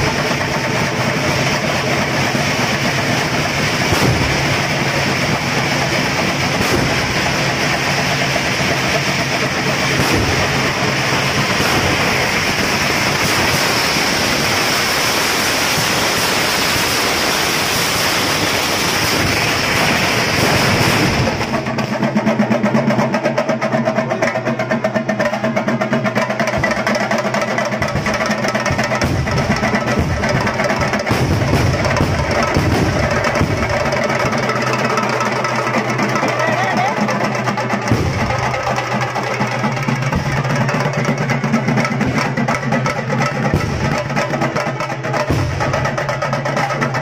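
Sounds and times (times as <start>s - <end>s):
fast drum roll: 0.0s - 47.0s.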